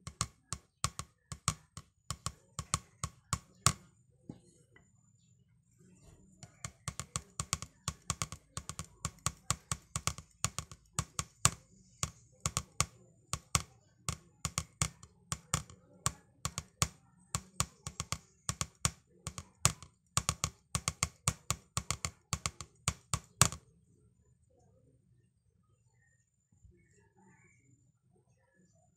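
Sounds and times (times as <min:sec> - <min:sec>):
drumsticks tapping practice pad: 0:00.0 - 0:03.8, 0:06.4 - 0:23.6.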